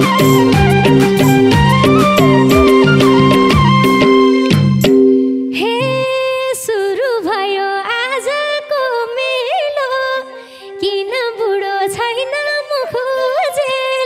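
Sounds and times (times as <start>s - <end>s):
steady held tone: 0.0s - 6.6s
woman singing: 5.6s - 14.0s.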